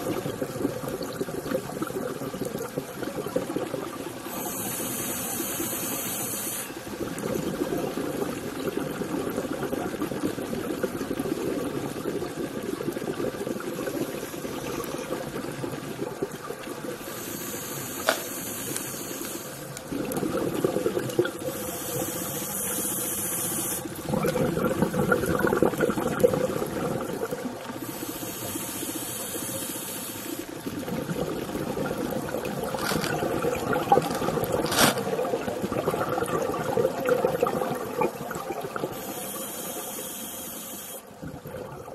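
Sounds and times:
bubbling exhalations: 0.0 - 4.7, 6.8 - 22.9, 23.6 - 28.0, 30.4 - 39.3, 41.0 - 41.9
diver inhaling through regulator: 4.2 - 6.8, 17.0 - 19.7, 21.4 - 23.9, 27.8 - 30.5, 38.9 - 41.1.

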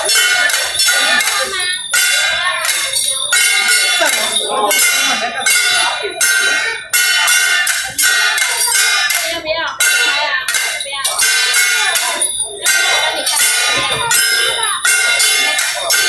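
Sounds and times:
ringing metal percussion strikes: 0.0 - 16.0.

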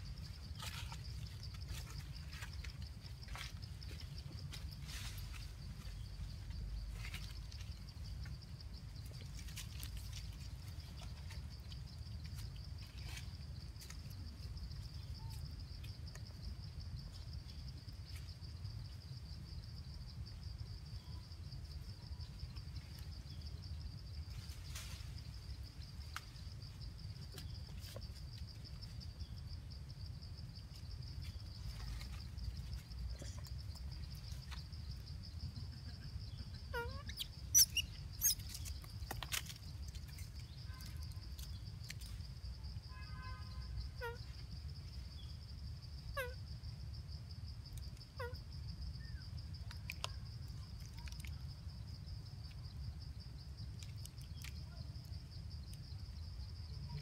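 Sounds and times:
sharp high-pitched animal calls: 36.7 - 38.4.

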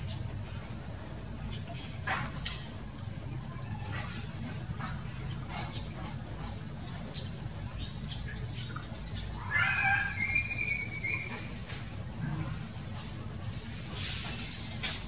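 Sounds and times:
animal call: 9.3 - 12.6.

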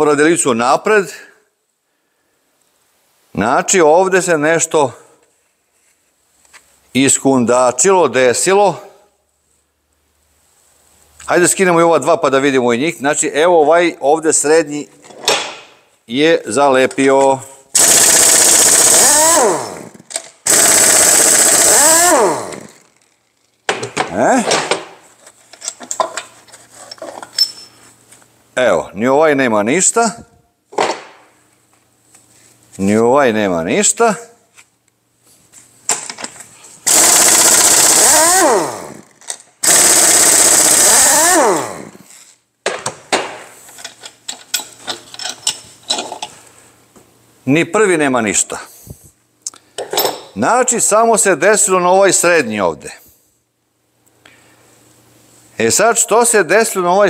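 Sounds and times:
impact wrench hammering: 20.5 - 22.8
metal parts clinking: 22.8 - 27.8, 43.7 - 46.4, 49.8 - 50.4.

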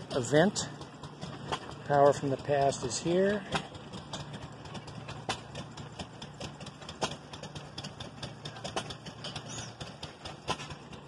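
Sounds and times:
antique engine idling: 0.0 - 11.0.

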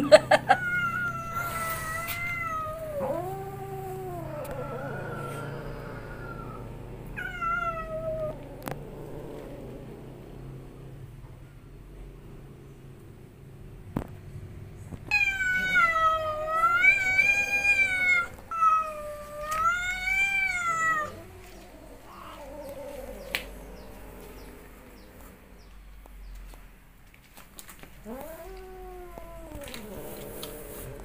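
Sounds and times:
cat yowling angrily: 0.4 - 8.7, 15.1 - 24.2.

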